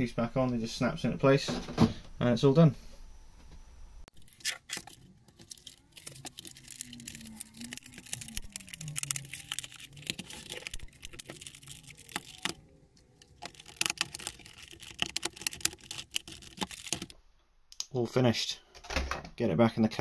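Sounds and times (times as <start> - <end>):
plastic parts clicking together: 4.1 - 17.1.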